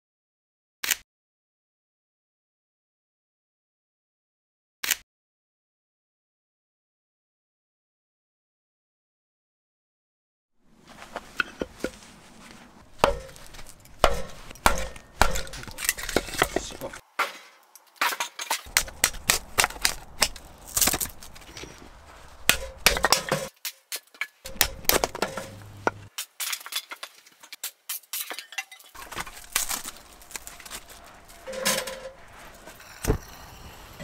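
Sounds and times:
firewood knocking and clacking: 12.9s - 32.2s.

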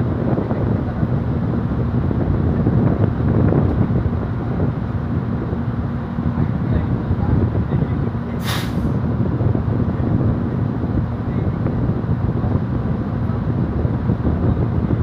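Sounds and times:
ferry engines rumbling: 0.0s - 15.0s
wind buffeting microphone: 0.0s - 15.0s
short hiss: 8.4s - 9.0s.

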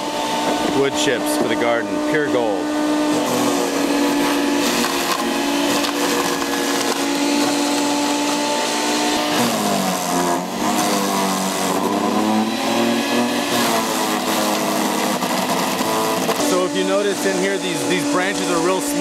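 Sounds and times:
wood chipper motor hum: 0.0s - 19.0s
branches crunching and splintering: 3.0s - 17.3s.

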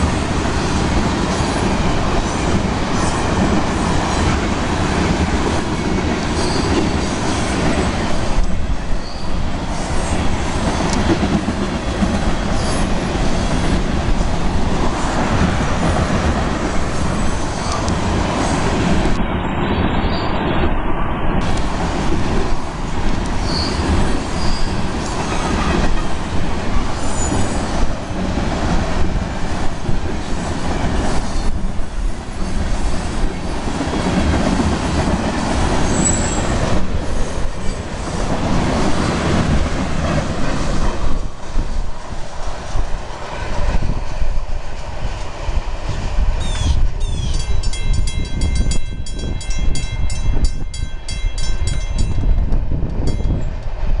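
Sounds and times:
freight train wheels rumbling on rail: 0.0s - 54.0s
wheel squeal: 6.4s - 7.0s, 9.0s - 9.4s, 23.4s - 24.8s, 27.0s - 27.7s, 35.8s - 36.4s
ringing bell tone: 47.4s - 52.2s.

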